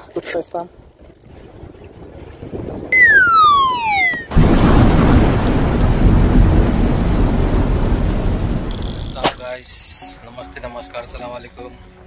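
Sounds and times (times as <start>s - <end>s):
falling whistle: 3.0s - 4.3s
loud rumbling crash: 4.3s - 9.4s.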